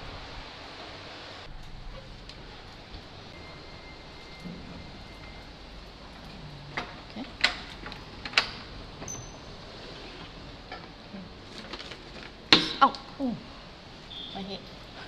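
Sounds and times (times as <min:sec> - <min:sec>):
sharp clicks and knocks: 0:06.7 - 0:09.2.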